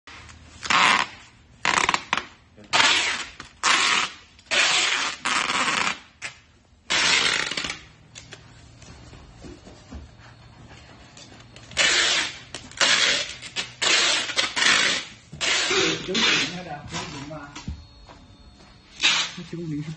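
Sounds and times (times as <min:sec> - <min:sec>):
packing tape pulled from dispenser: 0:00.6 - 0:08.4, 0:11.6 - 0:17.2, 0:19.0 - 0:19.4.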